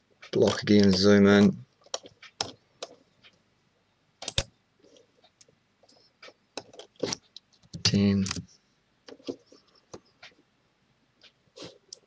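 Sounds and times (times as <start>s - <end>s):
mouse and keyboard clicks: 4.2s - 4.5s.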